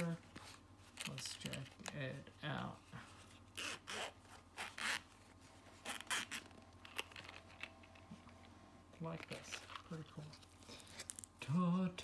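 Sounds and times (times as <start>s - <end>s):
zipper being pulled open: 3.5s - 5.1s, 5.8s - 6.5s.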